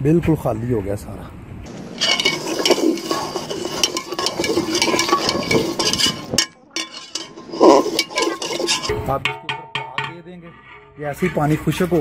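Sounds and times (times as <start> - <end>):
boiling water churning: 1.7 - 9.1
metal skimmer scraping pot: 1.7 - 9.9.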